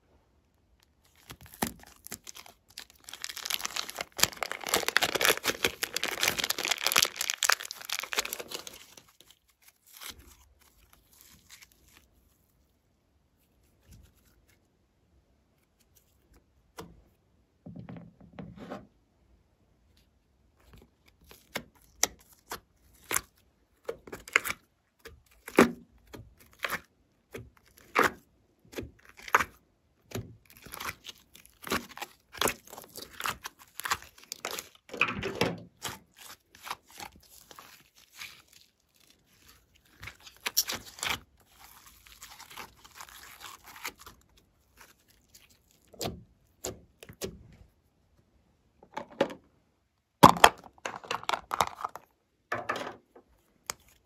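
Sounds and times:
slime crackling and squelching: 0.8 - 12.8, 20.6 - 47.4, 53.4 - 54.0.

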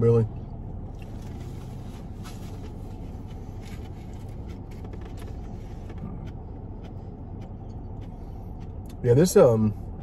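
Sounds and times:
car cabin hum: 0.0 - 10.0.

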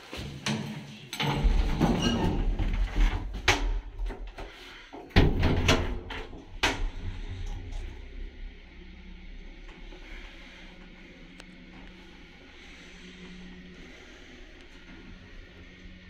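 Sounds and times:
low steady hum: 0.1 - 16.0
metal lift doors clacking shut: 0.3 - 4.0, 5.1 - 7.8
low rumbling handling noise: 1.2 - 16.0.

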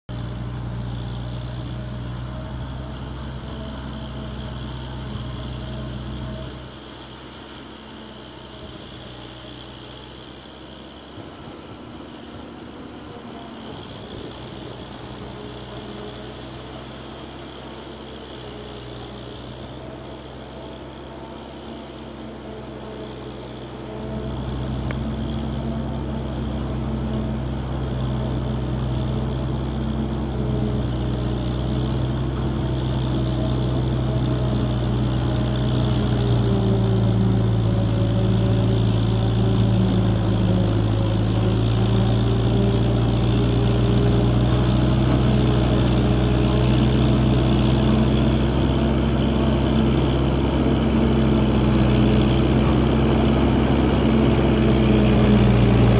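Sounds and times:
tractor engine running: 0.0 - 55.9.

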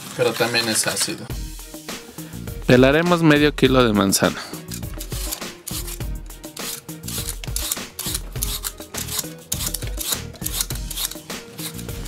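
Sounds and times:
background music: 0.2 - 12.0
peeler scraping apple skin: 4.7 - 12.0.

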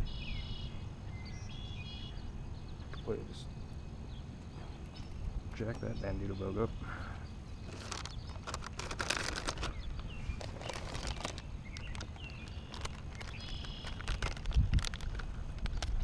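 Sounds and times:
faint bird chirps: 0.0 - 8.6, 9.2 - 14.4
plastic bag crinkling: 7.6 - 16.0.

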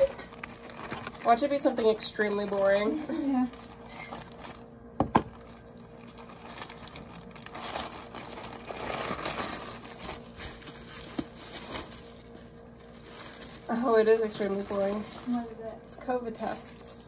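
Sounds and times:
plastic mailer crinkling: 0.0 - 17.0.

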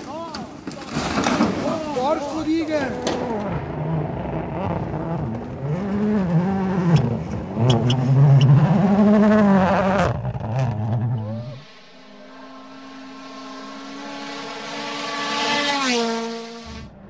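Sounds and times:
rally car engine revving: 3.0 - 17.0.

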